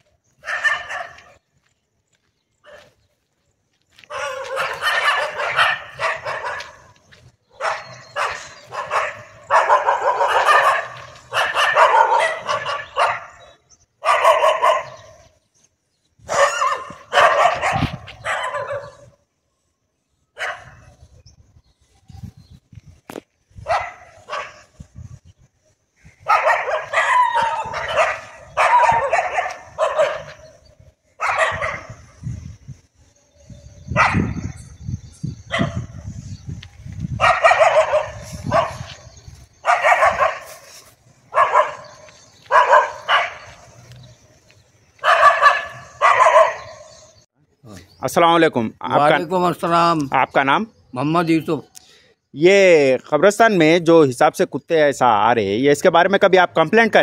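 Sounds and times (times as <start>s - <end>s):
dogs barking: 0.4s - 1.4s, 2.6s - 3.0s, 4.0s - 15.4s, 16.2s - 19.2s, 20.4s - 21.0s, 23.6s - 24.7s, 26.2s - 32.2s, 33.9s - 34.6s, 35.5s - 36.1s, 37.1s - 47.2s.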